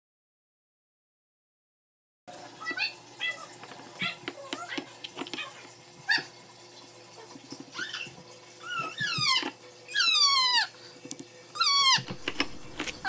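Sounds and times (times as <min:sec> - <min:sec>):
pet animal crying out: 0:07.7 - 0:10.8, 0:11.5 - 0:13.0.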